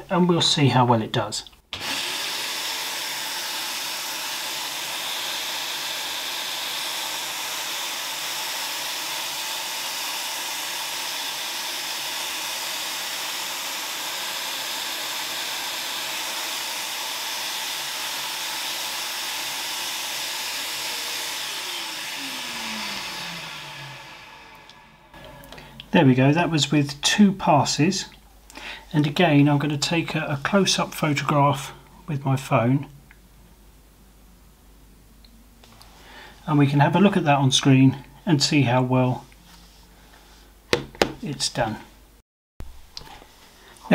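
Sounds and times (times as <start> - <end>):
motor winding down whine: 1.8 - 25.6
vacuum cleaner running: 1.8 - 25.9.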